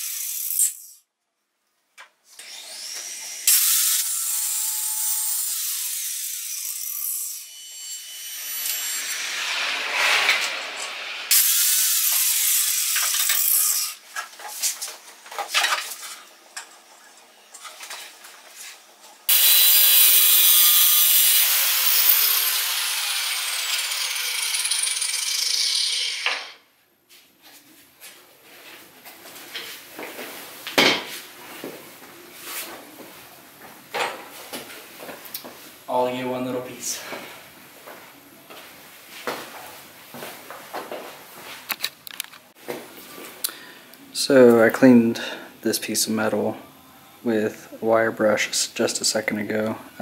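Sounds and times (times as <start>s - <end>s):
angle grinder cutting steel: 2.4s - 14.0s, 19.3s - 26.6s.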